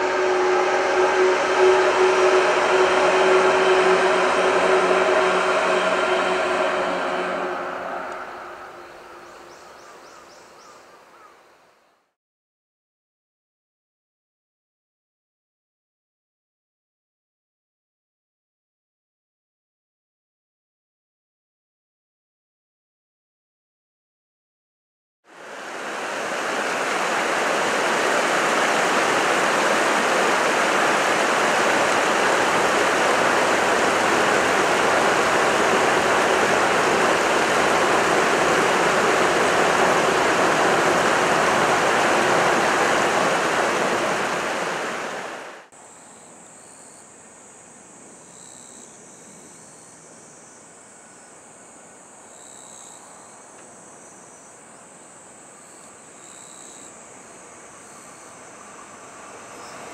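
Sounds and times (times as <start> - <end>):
loud rushing noise: 0.0 - 9.6, 25.3 - 45.7
insects chirring: 45.9 - 51.4, 52.3 - 54.6, 55.3 - 59.8.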